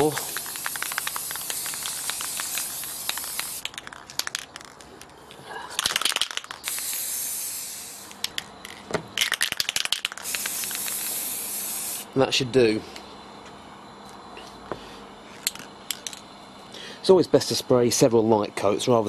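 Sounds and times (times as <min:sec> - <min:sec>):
spray paint can hissing: 0:00.0 - 0:04.8, 0:05.8 - 0:12.1
spray can rattling: 0:00.0 - 0:05.1, 0:05.8 - 0:12.0.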